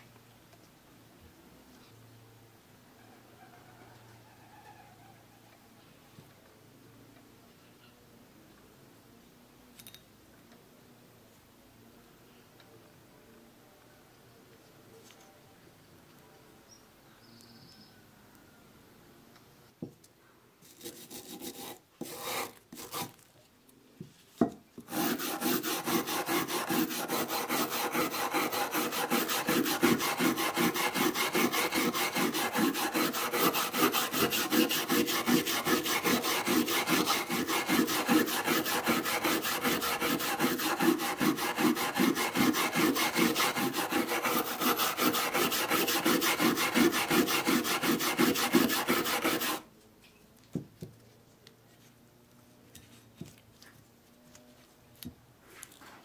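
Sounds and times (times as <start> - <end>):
wire brush scrubbing rusty steel: 24.9 - 49.6.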